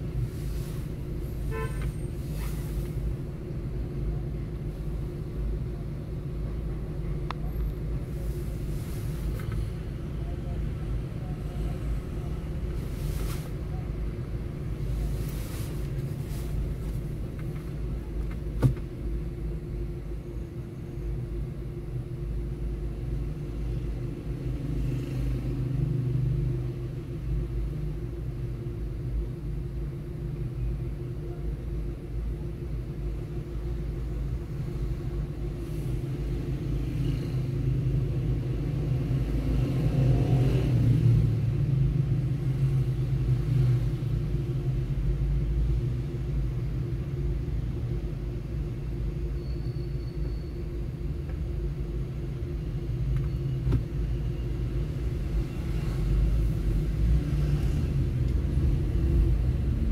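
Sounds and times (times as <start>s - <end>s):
nearby traffic: 36.8s - 44.2s.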